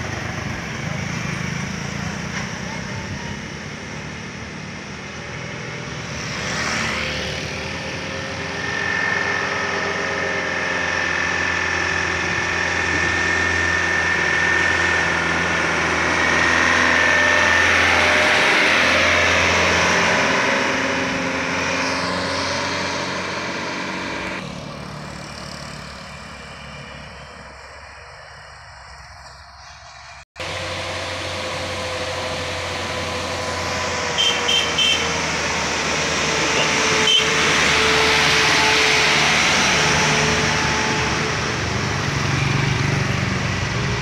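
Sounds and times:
motorbike passing: 0:00.0 - 0:29.0, 0:30.4 - 0:44.0
truck engine passing: 0:00.0 - 0:44.0
steady high whine: 0:07.6 - 0:19.6.

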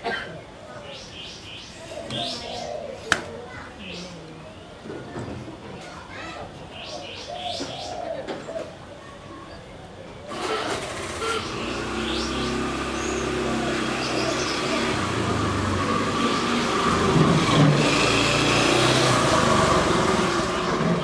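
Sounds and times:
vehicle engine running: 0:10.3 - 0:21.0.

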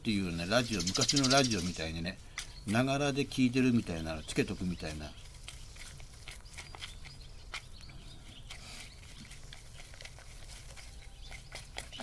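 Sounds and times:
man chewing wetly: 0:05.2 - 0:12.0.

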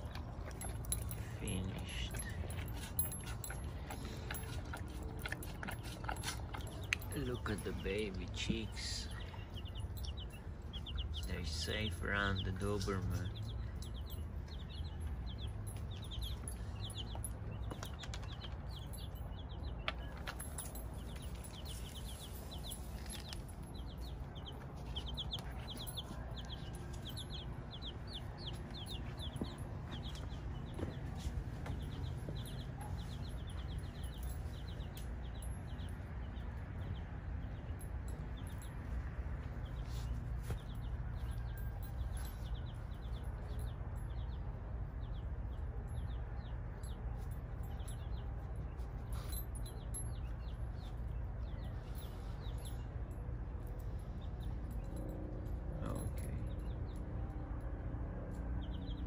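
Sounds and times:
baby chicks peeping: 0:00.0 - 0:57.3, 0:58.3 - 0:59.0.

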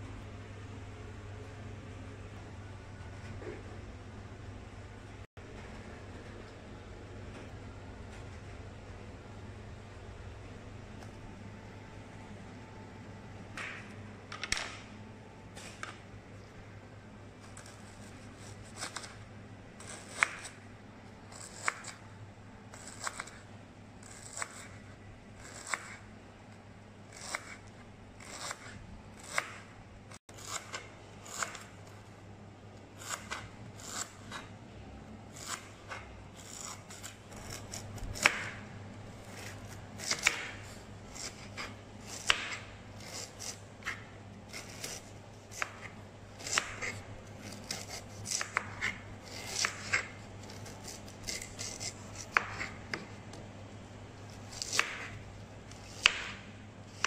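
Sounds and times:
knife slicing on wooden board: 0:39.2 - 0:53.0.

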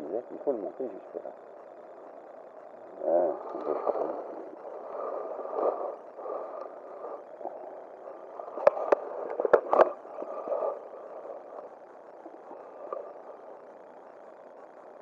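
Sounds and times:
sharp clicks: 0:08.6 - 0:10.0.

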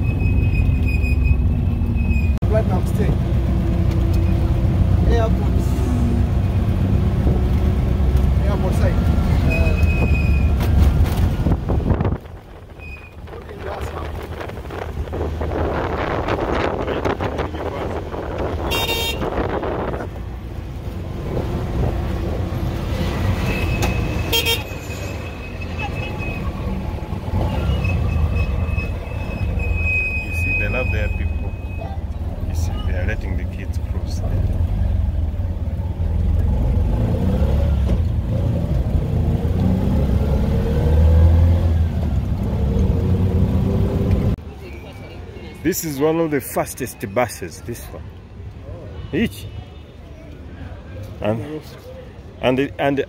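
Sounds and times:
low road rumble: 0:00.0 - 0:53.0
wind buffeting microphone: 0:09.9 - 0:20.4
vehicle horn toot: 0:18.6 - 0:19.4, 0:23.5 - 0:25.1.

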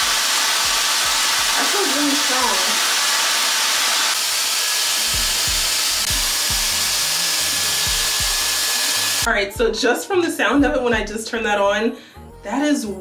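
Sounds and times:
hair dryer air rush: 0:00.0 - 0:09.3
high motor whine: 0:03.6 - 0:09.3
music with steady beat: 0:05.1 - 0:11.3.

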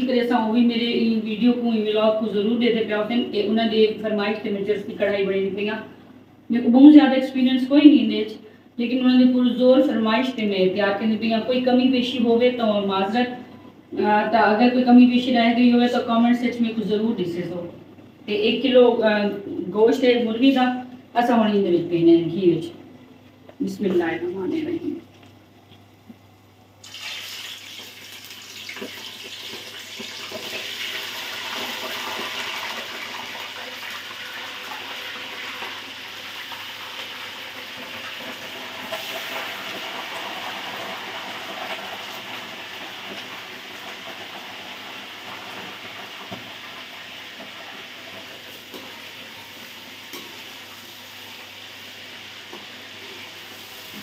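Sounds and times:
chicken sizzling in hot fat: 0:26.8 - 0:54.0.

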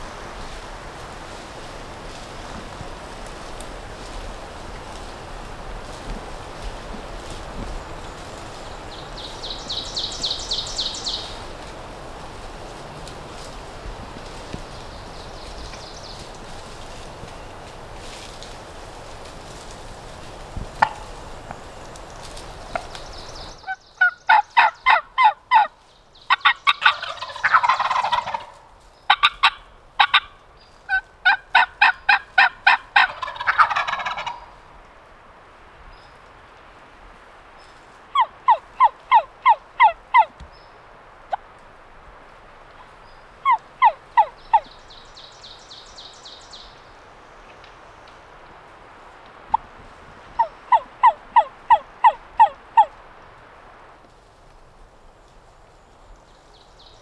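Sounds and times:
turkey gobbles: 0:20.8 - 0:21.2, 0:23.6 - 0:25.7, 0:26.3 - 0:30.3, 0:30.9 - 0:34.5, 0:38.1 - 0:40.4, 0:50.4 - 0:52.9
turkeys yelping: 0:20.8 - 0:21.3, 0:23.6 - 0:25.7, 0:26.3 - 0:34.6, 0:38.1 - 0:40.4, 0:42.8 - 0:44.7, 0:50.4 - 0:53.0.

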